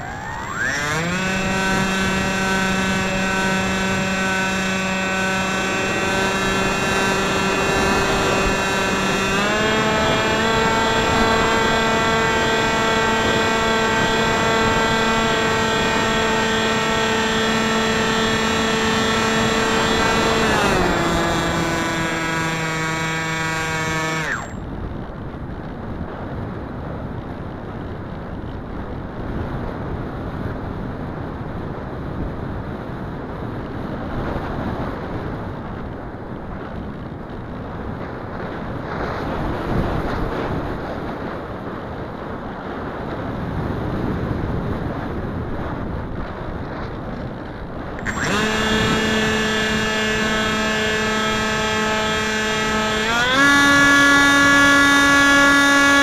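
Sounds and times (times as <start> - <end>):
electric motor whining: 0.0 - 24.7, 48.0 - 56.0
wind rushing over camera: 0.0 - 55.5.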